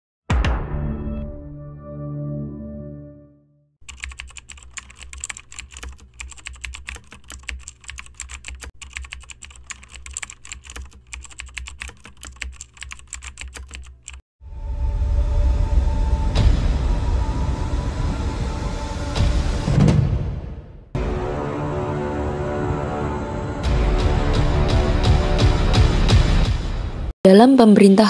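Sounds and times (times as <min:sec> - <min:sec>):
keyboard typing clicks: 0:03.8 - 0:14.2
loud low rumbling noise: 0:14.5 - 0:19.8.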